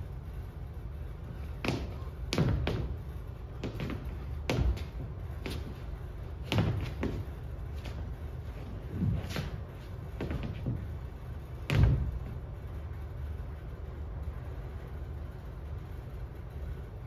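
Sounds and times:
shoes stamping on stage floor: 0:01.4 - 0:11.0, 0:11.6 - 0:12.3.

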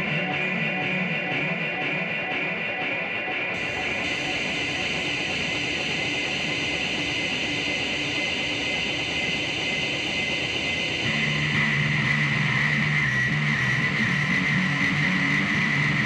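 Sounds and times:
noisy hissing drone: 0:03.6 - 0:16.0.

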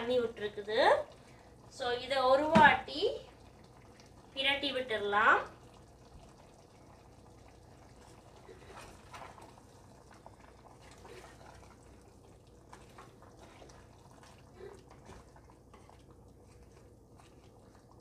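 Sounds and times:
sauce simmering: 0:00.0 - 0:18.0.

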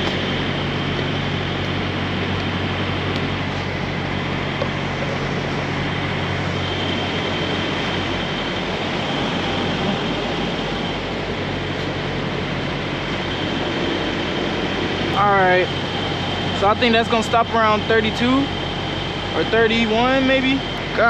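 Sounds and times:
diesel engine idling: 0:00.0 - 0:21.0.

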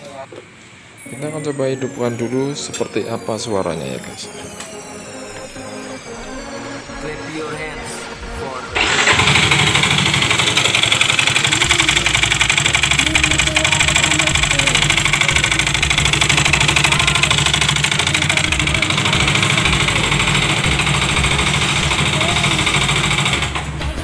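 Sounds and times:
scooter engine idling roughly: 0:08.8 - 0:24.0.

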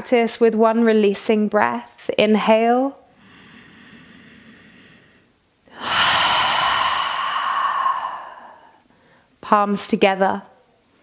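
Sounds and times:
woman breathing in: 0:03.1 - 0:09.4
woman sighing: 0:05.7 - 0:08.8.

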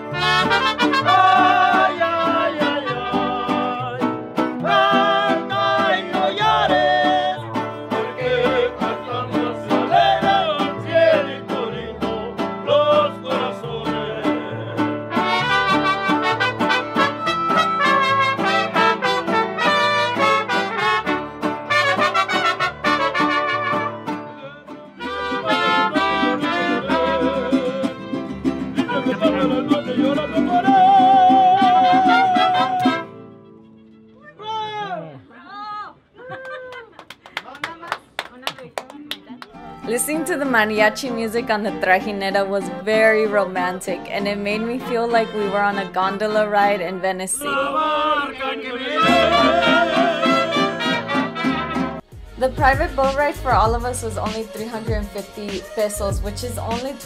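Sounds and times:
trumpets playing: 0:00.0 - 0:03.5, 0:15.0 - 0:24.3, 0:24.9 - 0:28.2, 0:28.8 - 0:34.4, 0:43.6 - 0:57.0
vihuela strummed fast: 0:00.0 - 0:33.0, 0:49.0 - 0:57.0
guitar: 0:00.0 - 0:34.5, 0:38.9 - 0:57.0
man singing: 0:00.4 - 0:20.3, 0:22.9 - 0:28.2, 0:28.8 - 0:33.1, 0:47.4 - 0:51.4
deep bass notes: 0:52.1 - 0:54.3.

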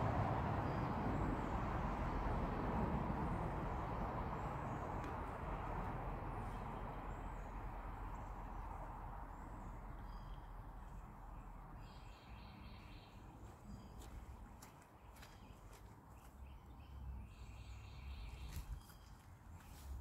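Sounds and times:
faint high bird chirps: 0:15.1 - 0:20.0.

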